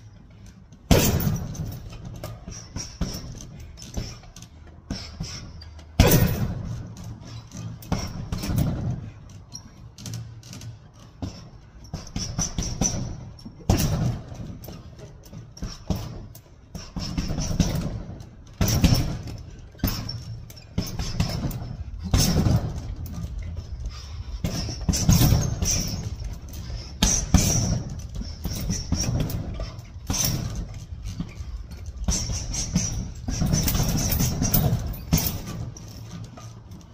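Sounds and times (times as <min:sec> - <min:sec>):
fists thudding into heavy bag: 0:00.9 - 0:02.0, 0:06.0 - 0:06.8, 0:17.0 - 0:20.1, 0:20.8 - 0:23.0, 0:24.4 - 0:26.1
chain jingling: 0:24.8 - 0:36.9.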